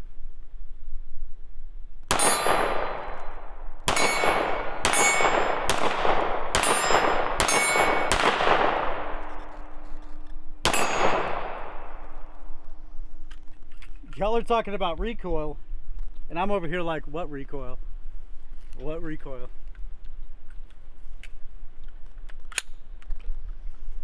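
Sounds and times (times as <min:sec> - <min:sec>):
pistol shots ringing: 0:02.1 - 0:09.6, 0:10.6 - 0:12.3.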